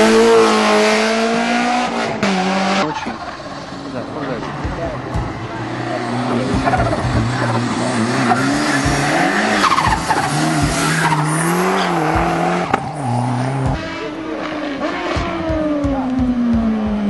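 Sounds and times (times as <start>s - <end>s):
car engine running hard: 0.0s - 17.0s.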